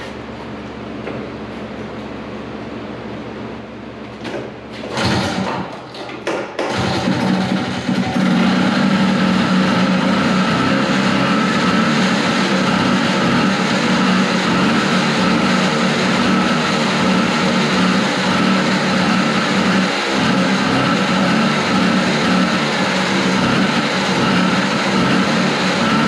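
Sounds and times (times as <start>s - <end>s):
snowmobile engine running: 6.7s - 26.0s.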